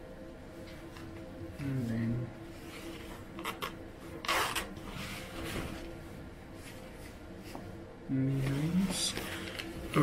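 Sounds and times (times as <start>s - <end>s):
clothing rustling: 0.5s - 10.0s.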